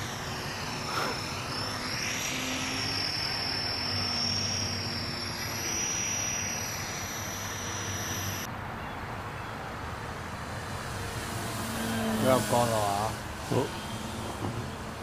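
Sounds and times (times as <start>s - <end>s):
model airplane motor whine: 0.0s - 8.5s, 10.4s - 15.0s
steady hiss: 0.0s - 8.5s.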